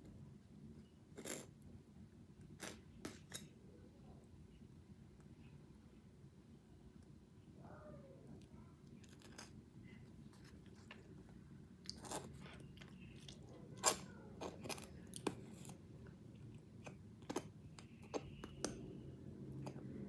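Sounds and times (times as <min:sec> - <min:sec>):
person chewing: 0:08.9 - 0:18.8.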